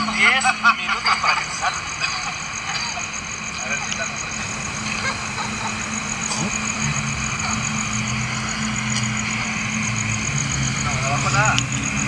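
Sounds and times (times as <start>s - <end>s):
rapid high-pitched pulsing: 1.6s - 12.0s
low engine hum: 3.3s - 12.0s.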